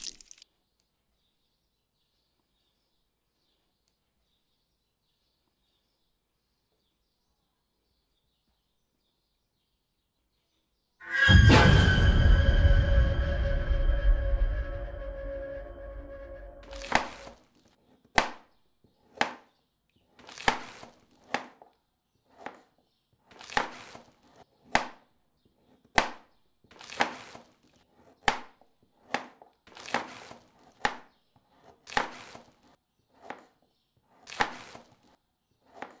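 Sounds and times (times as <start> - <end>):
knife chopping on cutting board: 16.7 - 17.4, 18.1 - 18.4, 19.0 - 19.5, 20.3 - 21.7, 22.3 - 22.7, 23.3 - 25.0, 25.6 - 36.0.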